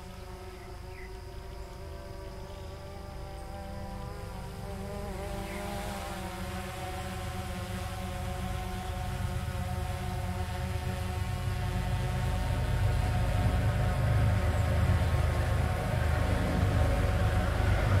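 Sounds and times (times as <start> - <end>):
diesel locomotive engines droning: 11.7 - 18.0.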